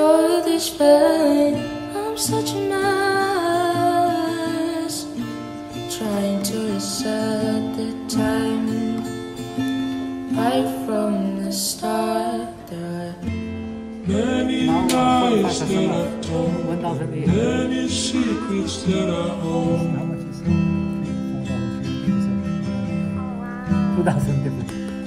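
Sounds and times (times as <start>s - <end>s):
strummed acoustic guitar: 0.0s - 25.0s
person singing: 5.9s - 9.1s, 10.3s - 13.2s, 14.1s - 20.2s, 23.1s - 25.0s.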